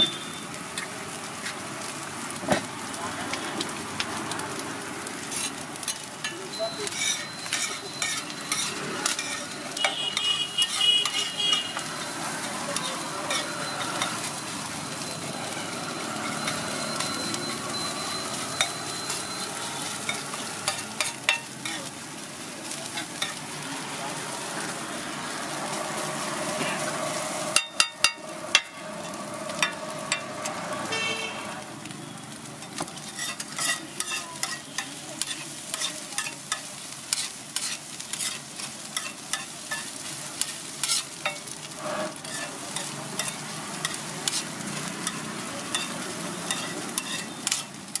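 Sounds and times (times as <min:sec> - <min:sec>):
sizzle of frying: 0:00.0 - 0:48.0
metal spatula scraping a griddle: 0:05.2 - 0:14.5, 0:18.5 - 0:22.0, 0:22.6 - 0:23.5, 0:25.3 - 0:31.2, 0:32.6 - 0:48.0.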